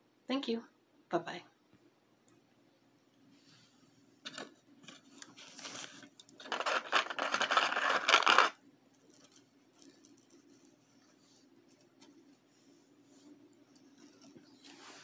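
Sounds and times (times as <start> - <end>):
packaging rustling: 5.4 - 8.6.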